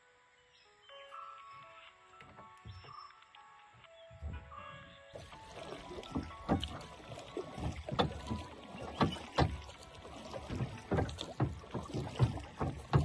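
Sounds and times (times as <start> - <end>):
oar strokes through water: 5.1 - 13.0
oars knocking in oarlocks: 5.2 - 13.0.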